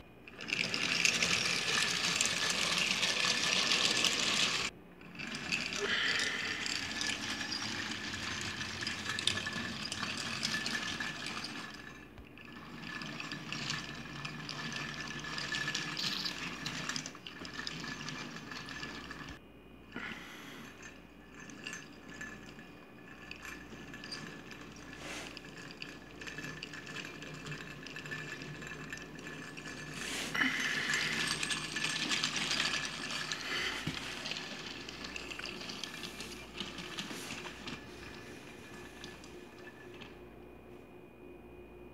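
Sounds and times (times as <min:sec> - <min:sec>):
toy trains rolling and clinking: 0:00.3 - 0:19.4, 0:20.0 - 0:40.2.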